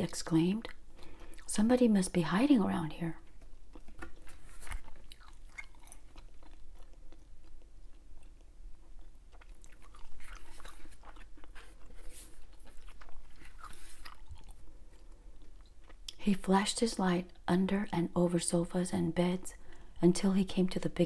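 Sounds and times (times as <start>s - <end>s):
gum chewing wet clicks: 3.3s - 16.2s.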